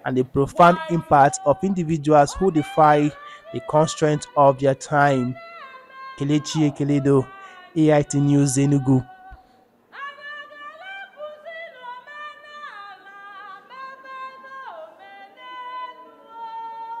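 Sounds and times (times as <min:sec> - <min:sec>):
person singing solo: 0:00.1 - 0:05.4, 0:06.2 - 0:09.4.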